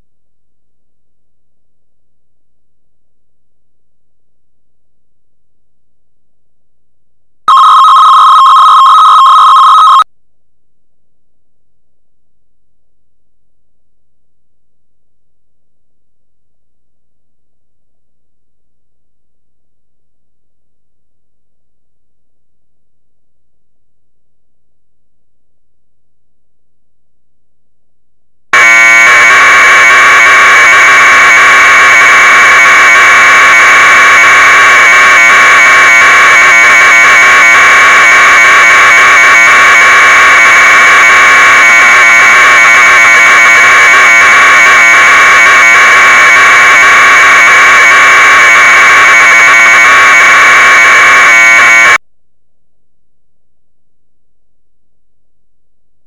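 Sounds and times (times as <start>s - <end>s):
warbling modem data screech: 7.5s - 10.0s, 28.6s - 52.0s.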